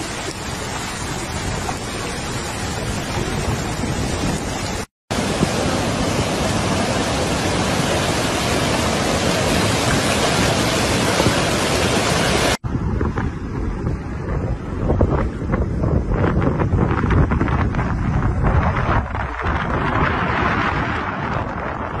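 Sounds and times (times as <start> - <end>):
floodwater rushing: 0.0 - 12.6
wind buffeting microphone: 0.0 - 22.0.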